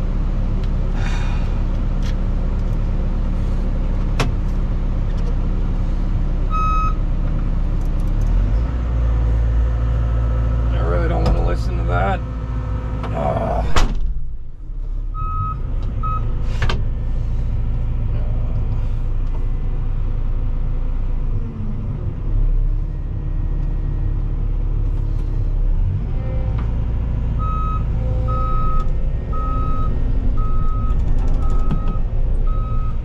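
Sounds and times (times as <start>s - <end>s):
excavator diesel engine: 0.0s - 33.0s
warning alarm beeps: 6.5s - 7.0s, 15.2s - 16.3s, 27.4s - 33.0s.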